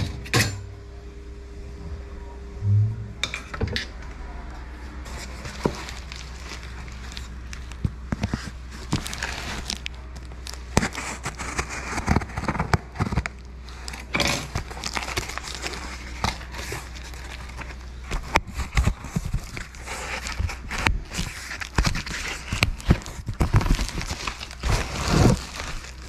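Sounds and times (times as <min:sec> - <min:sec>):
bubble wrap crinkling: 0:05.0 - 0:26.0.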